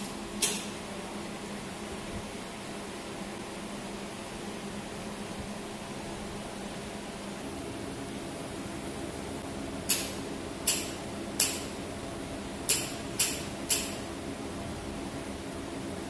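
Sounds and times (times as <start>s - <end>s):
laser welder sharp snaps: 9.9s - 11.8s, 12.7s - 14.0s.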